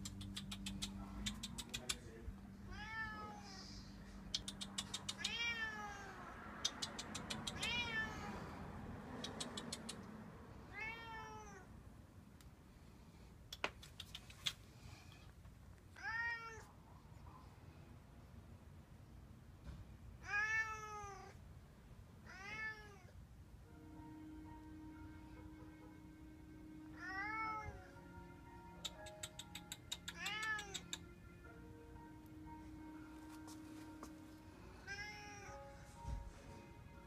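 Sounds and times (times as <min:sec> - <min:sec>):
sharp clicking bursts: 0:00.0 - 0:02.0, 0:04.4 - 0:05.3, 0:06.6 - 0:07.7, 0:09.2 - 0:10.1, 0:13.5 - 0:14.8, 0:28.8 - 0:31.1
cat meowing: 0:02.7 - 0:03.9, 0:04.9 - 0:06.4, 0:07.1 - 0:08.6, 0:10.7 - 0:11.7, 0:16.0 - 0:16.7, 0:20.2 - 0:21.4, 0:22.3 - 0:23.1, 0:26.9 - 0:27.9, 0:29.9 - 0:31.0, 0:34.8 - 0:35.6.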